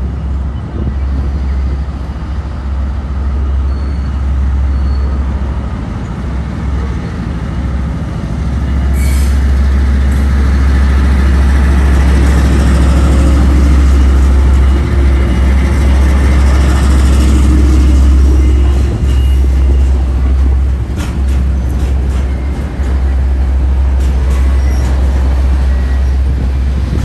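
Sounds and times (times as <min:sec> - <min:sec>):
diesel locomotive engine drone: 0:00.0 - 0:27.0
rumble of rolling wagons: 0:06.0 - 0:27.0.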